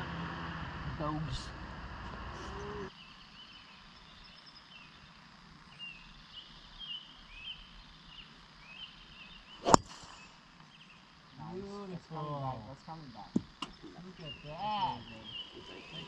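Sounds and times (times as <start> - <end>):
faint bird chirps: 2.3 - 16.0
golf club striking ball: 9.6 - 10.2.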